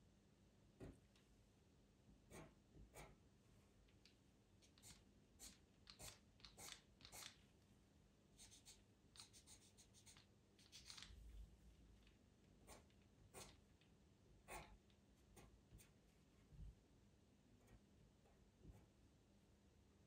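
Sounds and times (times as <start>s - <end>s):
pencil scratching on paper: 2.3s - 3.2s, 4.6s - 7.4s, 8.4s - 11.1s, 12.6s - 13.6s, 14.4s - 16.0s.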